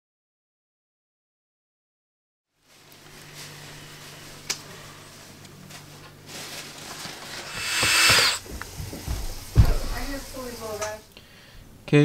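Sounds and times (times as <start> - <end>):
rasping squealing scrape: 7.4 - 8.4.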